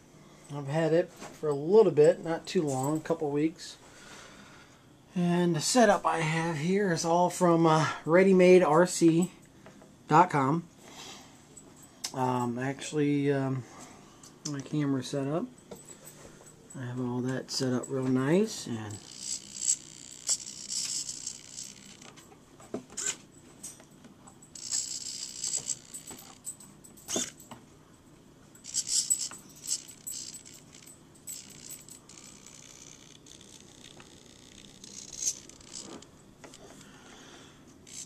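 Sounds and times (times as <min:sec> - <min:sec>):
sharp clicks and small rattles: 0:18.9 - 0:27.6, 0:28.6 - 0:36.6.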